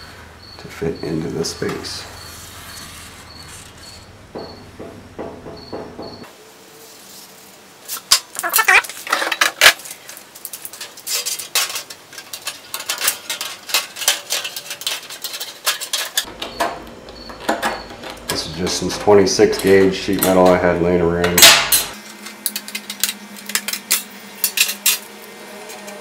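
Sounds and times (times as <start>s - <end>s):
marker scratching on metal: 2.2s - 4.0s.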